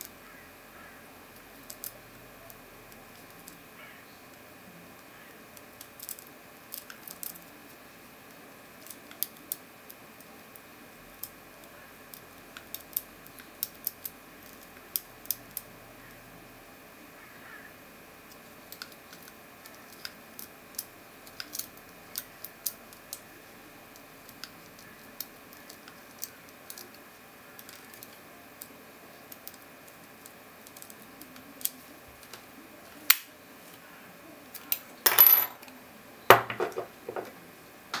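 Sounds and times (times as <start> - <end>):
padlock clattering on wooden table: 35.1 - 35.6, 36.3 - 37.3.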